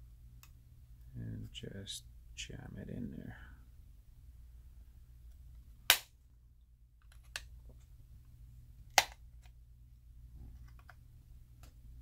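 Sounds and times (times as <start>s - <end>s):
plastic case snapping: 8.9s - 9.2s.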